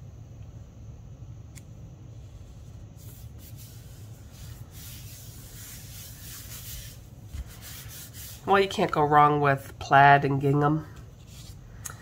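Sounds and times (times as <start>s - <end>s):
hands swishing on paper: 3.0s - 8.5s.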